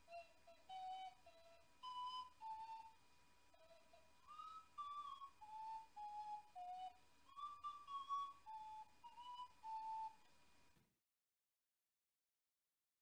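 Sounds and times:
ocarina melody: 0:00.0 - 0:10.2.

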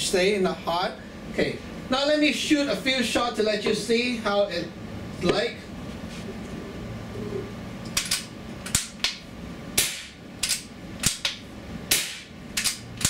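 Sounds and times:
air rifle shots cracking: 0:09.8 - 0:11.3, 0:11.9 - 0:12.8.

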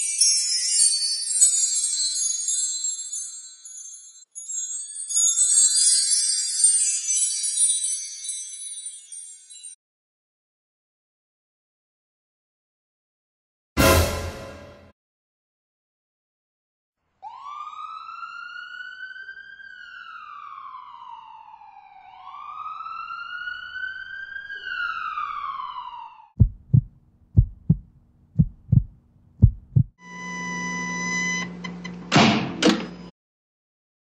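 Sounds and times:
siren wailing: 0:17.3 - 0:26.3
heartbeat thumping: 0:26.4 - 0:30.0
electronic hum: 0:30.0 - 0:32.0.

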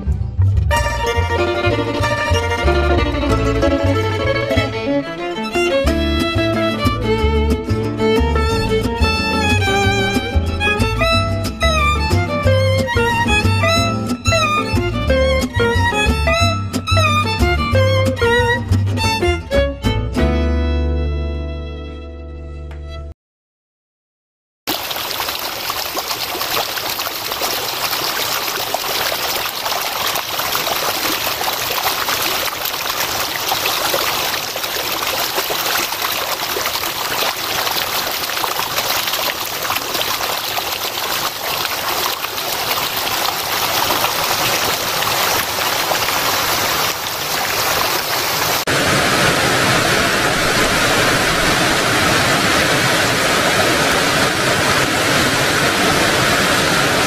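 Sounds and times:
small cascade rushing: 0:24.7 - 0:57.0
stream water rushing over rock: 0:24.7 - 0:57.0.

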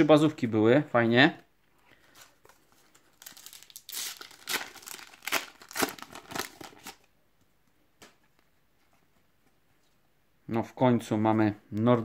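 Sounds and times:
foil sachet crinkling and tearing: 0:02.7 - 0:07.1.

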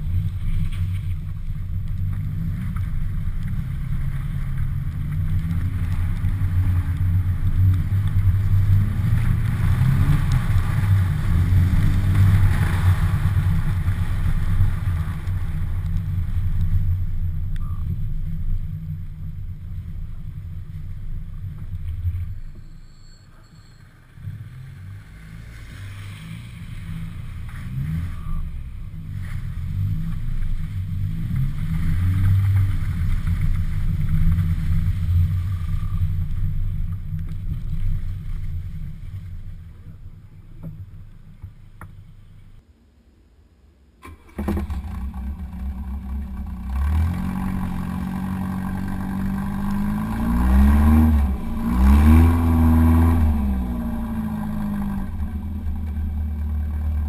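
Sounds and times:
car engine revving under load: 0:44.0 - 0:57.0.

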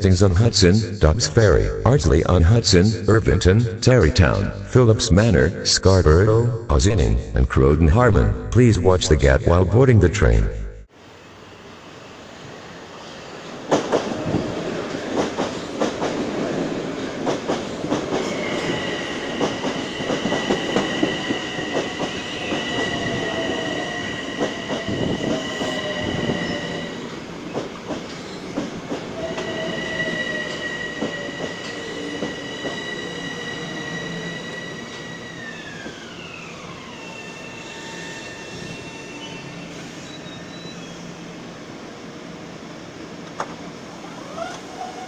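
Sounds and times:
train whine: 0:10.8 - 0:45.0.

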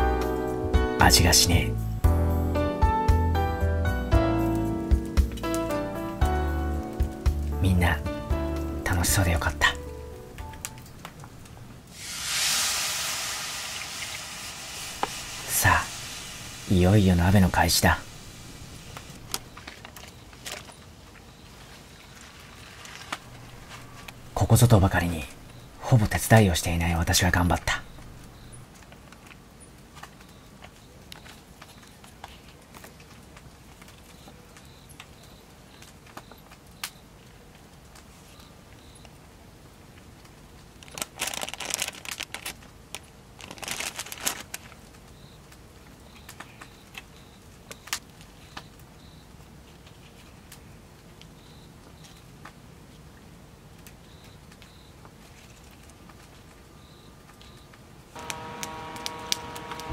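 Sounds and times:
crinkly rustling and crackling: 0:10.4 - 0:12.1, 0:13.7 - 0:39.2, 0:39.9 - 0:53.1, 0:53.7 - 0:59.9.

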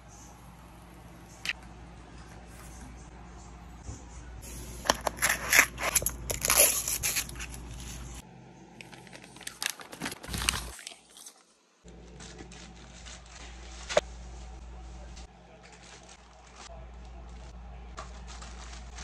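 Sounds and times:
plastic wrapping crinkling: 0:04.9 - 0:08.2, 0:08.8 - 0:14.0, 0:15.6 - 0:19.0.

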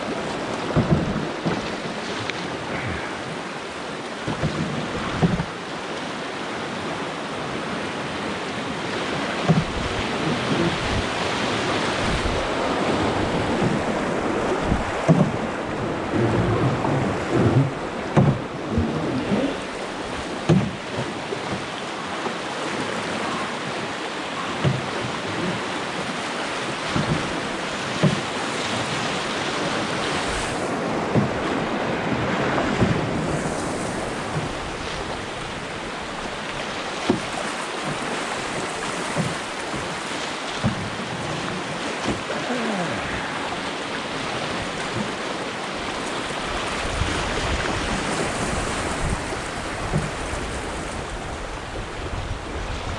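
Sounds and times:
whitewater rushing: 0:00.0 - 0:52.9.

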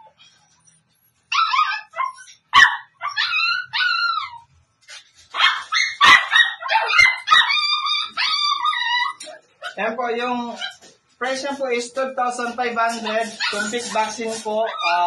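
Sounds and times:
puppies whining and yelping: 0:00.0 - 0:04.5, 0:05.3 - 0:09.8, 0:12.9 - 0:15.0.

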